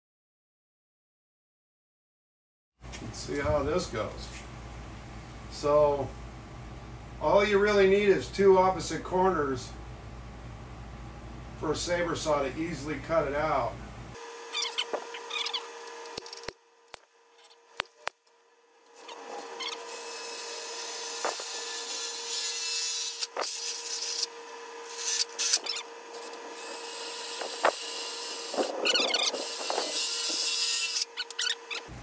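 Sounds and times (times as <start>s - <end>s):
drill bit grinding metal: 14.4s - 16.5s, 18.8s - 31.9s.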